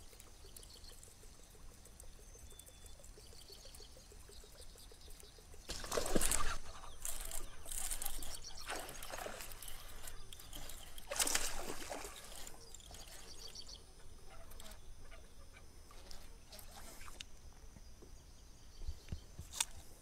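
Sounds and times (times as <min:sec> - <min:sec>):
water splashing: 0:05.7 - 0:12.9.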